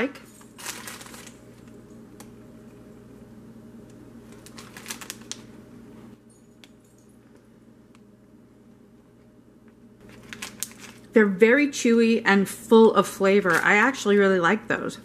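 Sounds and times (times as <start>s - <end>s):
candy bag crinkling and clicking: 0.0s - 2.3s, 4.2s - 5.6s, 10.0s - 11.2s, 13.3s - 14.1s
room hum: 0.0s - 15.0s.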